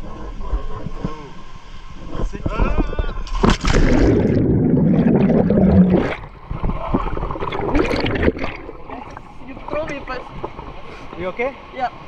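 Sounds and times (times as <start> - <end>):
bubbles churning and gurgling: 0.0 - 10.9
water sloshing at surface: 2.0 - 11.3
splash of water entry: 3.2 - 8.8.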